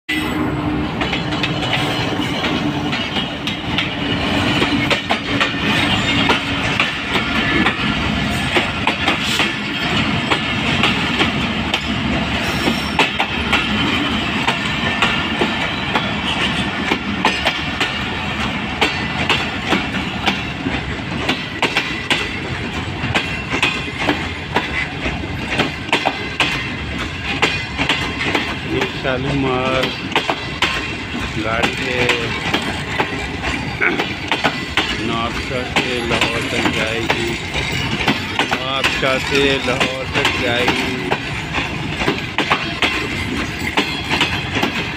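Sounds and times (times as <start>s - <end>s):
diesel locomotive passing: 0.1s - 44.9s
train wheel rumble: 0.1s - 44.9s
wheels clacking over rail joints: 0.8s - 44.9s.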